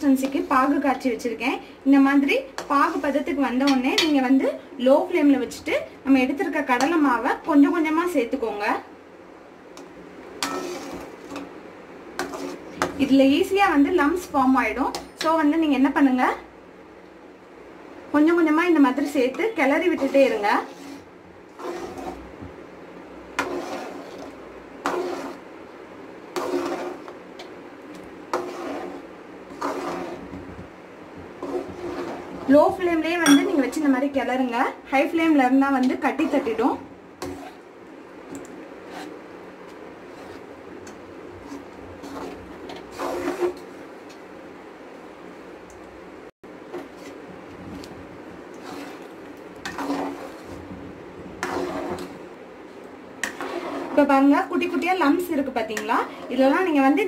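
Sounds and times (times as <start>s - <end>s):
metal spatula scraping pan: 2.2s - 4.3s, 10.4s - 11.5s, 12.2s - 13.5s, 18.4s - 22.3s, 23.3s - 25.4s, 26.3s - 27.2s, 28.3s - 30.4s, 31.4s - 33.8s, 35.9s - 37.6s, 40.0s - 40.5s, 41.4s - 43.8s, 48.5s - 50.6s, 51.4s - 52.3s, 53.2s - 54.2s.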